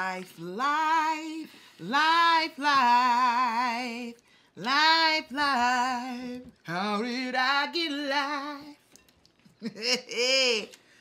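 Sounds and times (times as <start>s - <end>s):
woman singing a cappella: 0.0s - 8.9s, 9.6s - 10.9s.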